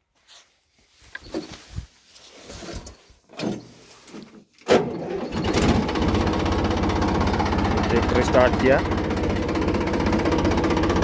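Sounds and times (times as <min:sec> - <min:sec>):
clunks and rattles of handling: 0:02.7 - 0:05.0
diesel engine running: 0:05.0 - 0:11.0.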